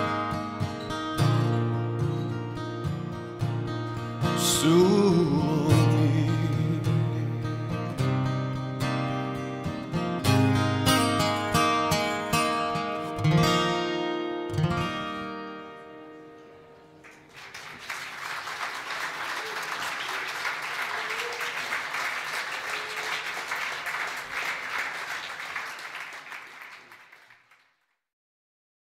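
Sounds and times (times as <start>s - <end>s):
audience applauding: 17.0s - 27.9s.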